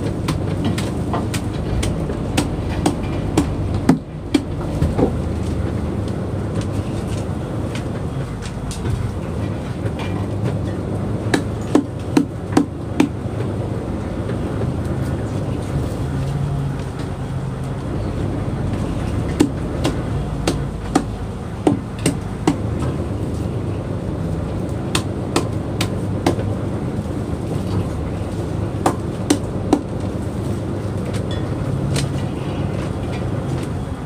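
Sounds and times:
boat engine drone: 0.0s - 34.0s.

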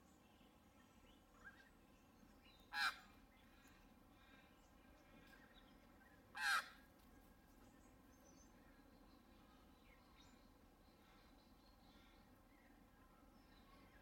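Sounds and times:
harsh caw-like bird calls: 2.7s - 4.5s, 6.3s - 6.8s.

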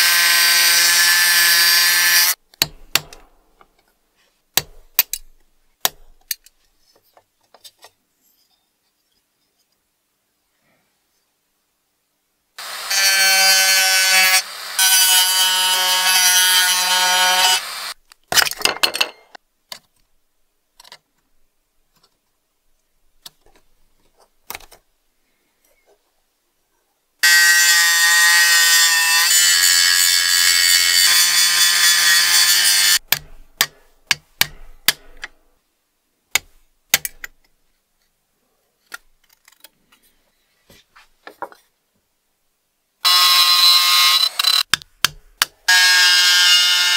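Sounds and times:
rotary tool high whine: 16.8s - 18.0s, 43.1s - 44.6s
clicks and taps of sheet metal: 33.1s - 35.4s.

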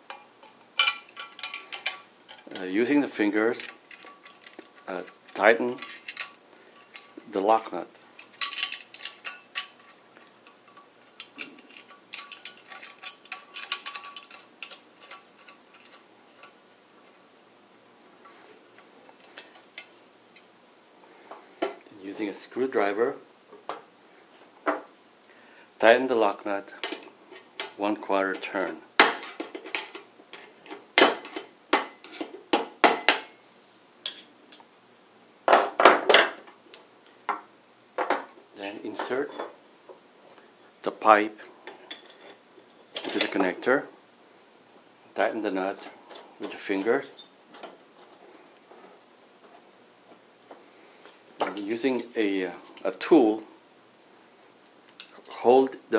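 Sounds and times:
metal parts clicking against metal box: 0.1s - 2.7s, 3.4s - 16.5s.

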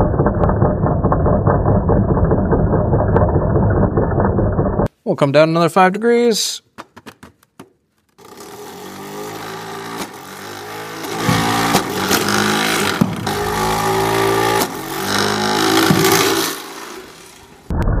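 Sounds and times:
electric flywheel shooter whining: 0.0s - 4.9s, 8.2s - 17.8s
sharp knocks of balls launching: 9.3s - 17.7s.

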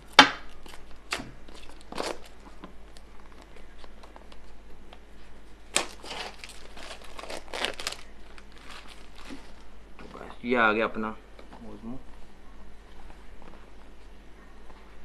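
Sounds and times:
plastic shrink wrap crinkling: 0.0s - 4.6s, 5.6s - 9.7s.

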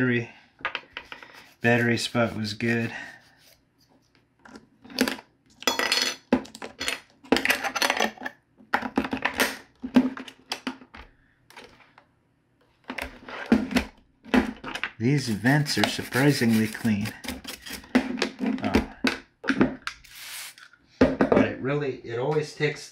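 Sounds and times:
cloth rubbing over plastic: 1.3s - 3.6s, 15.2s - 17.8s.

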